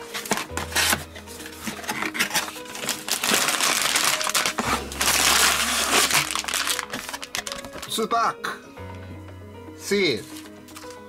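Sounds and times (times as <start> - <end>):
plastic bags crinkling: 0.0 - 8.1
background music: 0.0 - 11.0.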